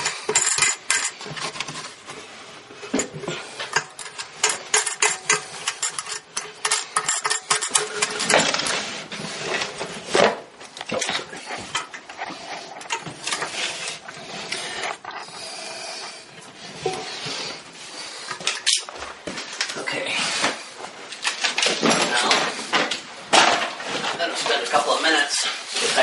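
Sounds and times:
metallic clicks and scraping: 0.0 - 2.2, 2.8 - 15.3.

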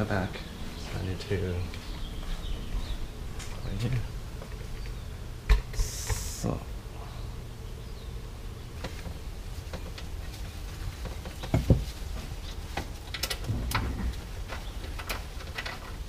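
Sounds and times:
hands and tools clicking and knocking: 8.8 - 16.0
loud thump: 13.4 - 14.2.

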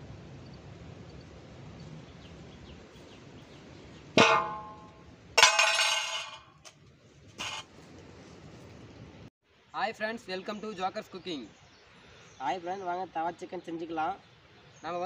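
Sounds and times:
ladle clanging on iron griddle: 4.2 - 6.5, 7.4 - 7.6.

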